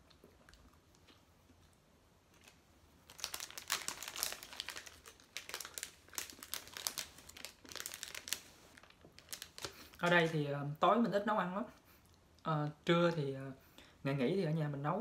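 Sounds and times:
plastic wrapper crinkling: 2.3s - 10.5s.

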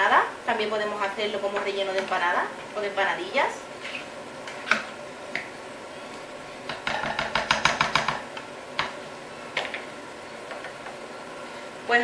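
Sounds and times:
knocks on pot: 6.7s - 8.2s.

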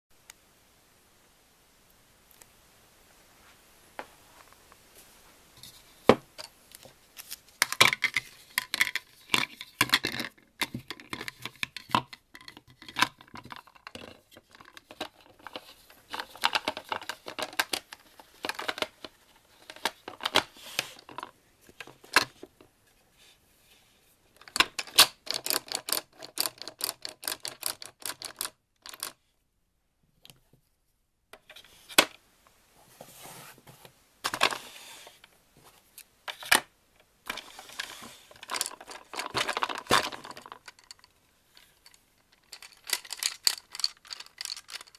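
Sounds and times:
plastic toy pieces clicking: 24.4s - 29.2s, 38.4s - 41.2s, 41.8s - 44.9s.

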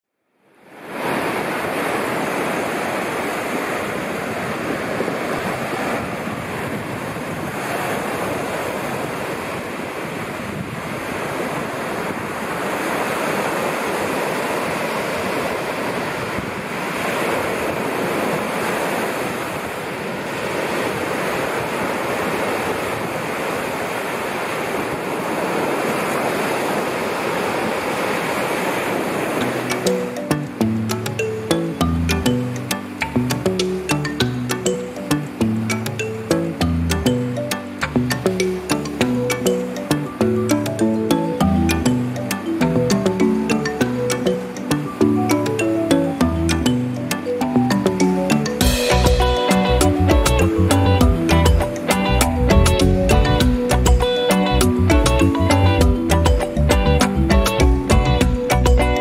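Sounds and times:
waves washing up a sandy beach: 0.4s - 46.3s
wind on microphone: 0.8s - 29.9s.

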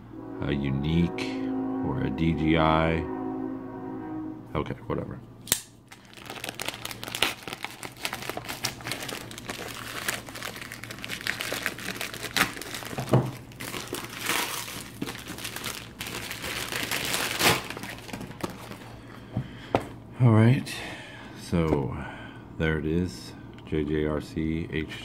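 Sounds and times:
plastic bag crinkling: 5.9s - 19.1s.

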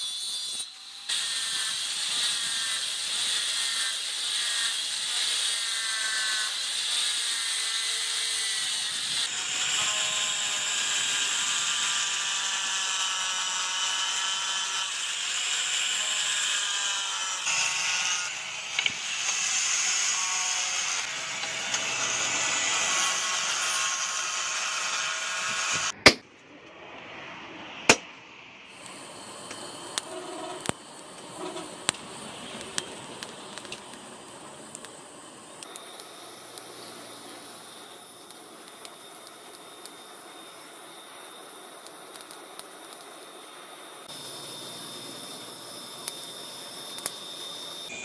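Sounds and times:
angle grinder sanding steel: 0.0s - 26.0s, 28.7s - 34.2s
forge fire rushing and crackling: 28.7s - 40.0s.

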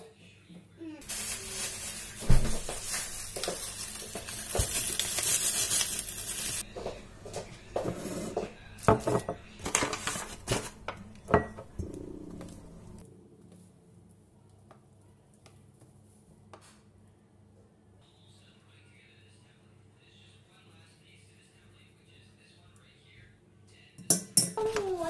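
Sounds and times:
bowls and utensils clinking: 7.8s - 12.7s.

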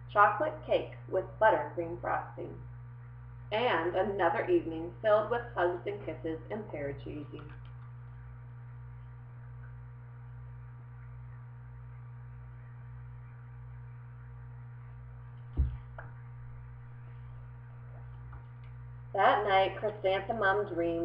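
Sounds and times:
low electrical hum: 0.0s - 21.0s
short thump: 15.5s - 16.2s.

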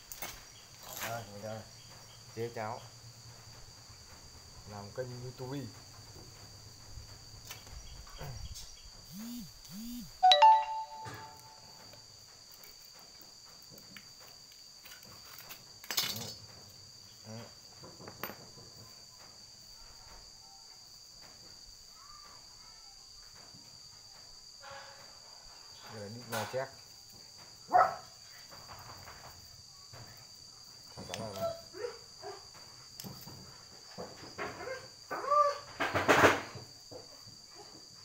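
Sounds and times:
insect chorus: 0.0s - 38.0s
loud short ringing tone: 9.2s - 11.7s.

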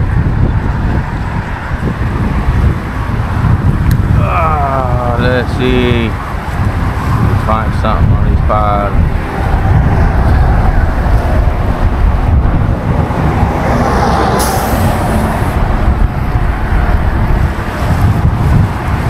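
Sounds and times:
road traffic noise: 0.0s - 19.0s
wind rumble: 0.0s - 19.0s.

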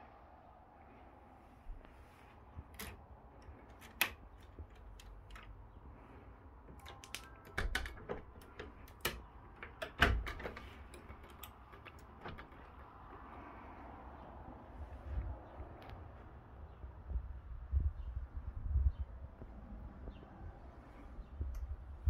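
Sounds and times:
window handle and frame clicks: 6.7s - 13.3s.

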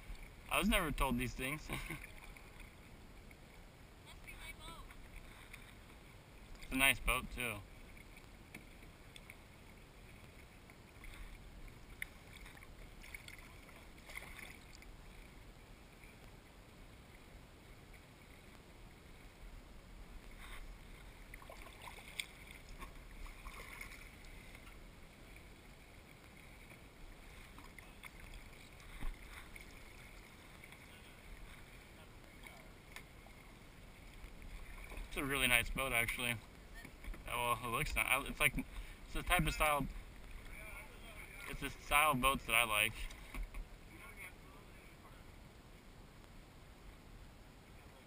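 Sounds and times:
kayak paddle dipping and dripping: 0.0s - 7.0s, 7.6s - 19.4s, 20.0s - 44.0s
small water splashes: 1.4s - 3.4s, 7.8s - 15.4s, 20.2s - 37.4s.

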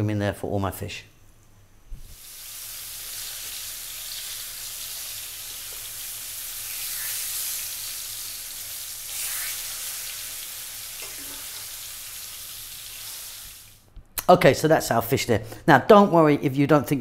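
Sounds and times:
fish sizzling in a frying pan: 2.1s - 13.8s.

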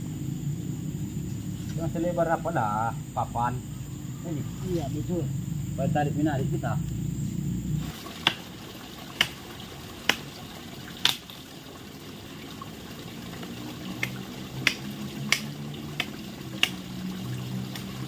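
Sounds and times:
fish splashing at surface: 7.8s - 18.0s.

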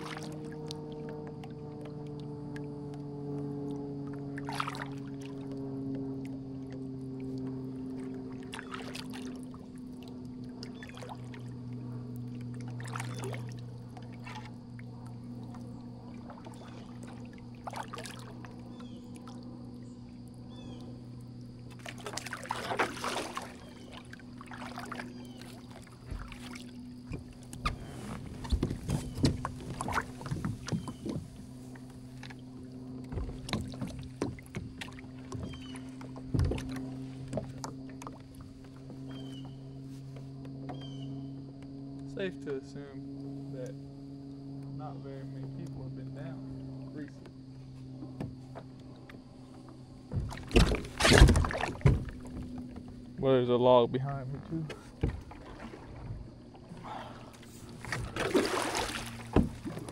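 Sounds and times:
paddle splashing in water: 0.0s - 41.1s, 46.3s - 53.4s, 54.1s - 59.9s.

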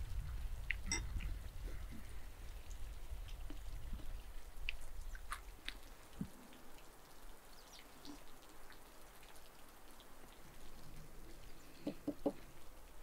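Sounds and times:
spoons clinking on ceramic bowls: 0.9s - 1.1s.

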